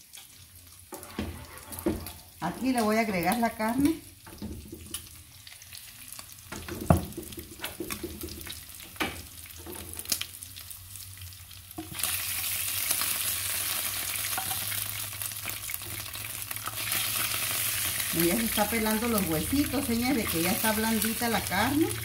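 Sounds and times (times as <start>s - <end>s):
oil and meat sizzling: 0.0s - 22.0s
spatula scraping a frying pan: 0.9s - 2.4s.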